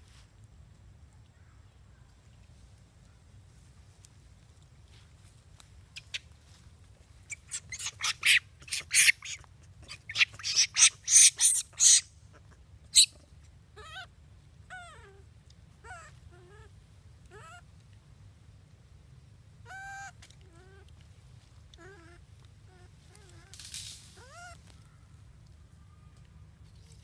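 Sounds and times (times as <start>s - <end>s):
monkeys screaming: 7.3s - 12.1s, 12.9s - 13.2s
monkey wavering calls: 7.3s - 13.2s, 13.8s - 14.1s, 19.6s - 20.9s.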